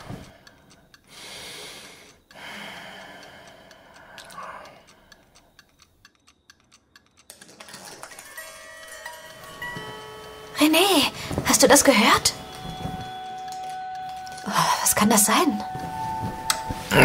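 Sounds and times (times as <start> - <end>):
soft breaths: 0.0 - 5.9, 10.7 - 13.4.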